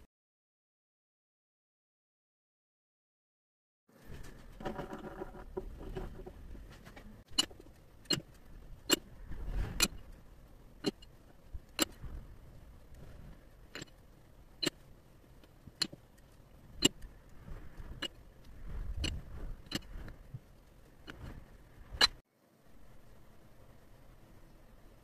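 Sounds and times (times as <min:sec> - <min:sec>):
faint low hum: 0:04.0 - 0:25.0.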